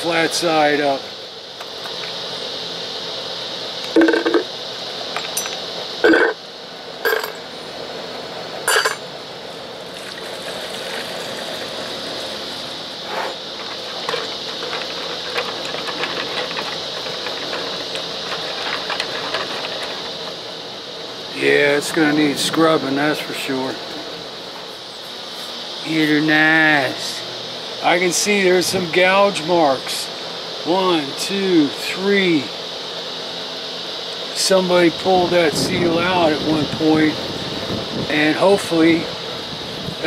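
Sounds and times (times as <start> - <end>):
steady background hiss: 0.0 - 40.0
metal parts clinking on glass jar: 5.2 - 6.3, 7.0 - 7.4, 8.7 - 9.0
liquid pouring into jar: 9.9 - 12.5.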